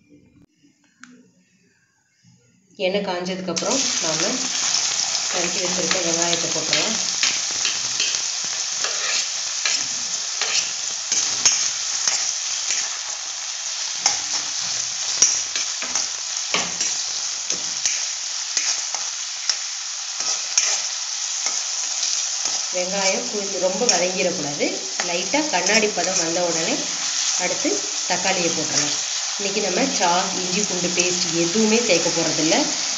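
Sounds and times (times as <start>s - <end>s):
onions sizzling in hot oil: 3.6s - 32.9s
spatula scraping a metal pan: 6.9s - 13.2s, 20.2s - 21.6s.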